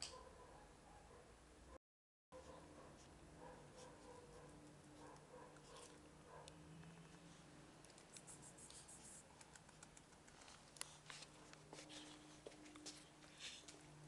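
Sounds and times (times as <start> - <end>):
dog claws clicking on tiles: 9.3 - 11.0.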